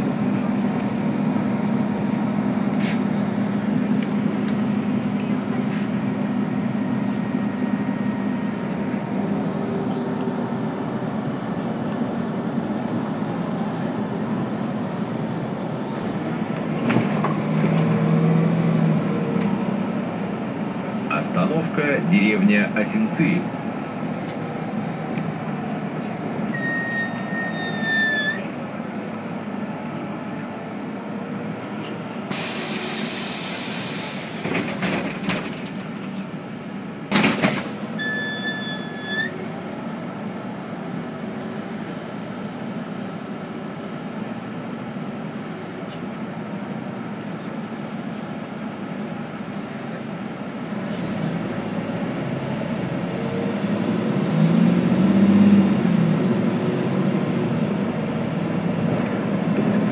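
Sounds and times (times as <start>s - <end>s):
bus engine running: 0.0s - 59.9s
compressed air hiss: 32.3s - 34.6s
electronic warning beep: 38.0s - 39.4s.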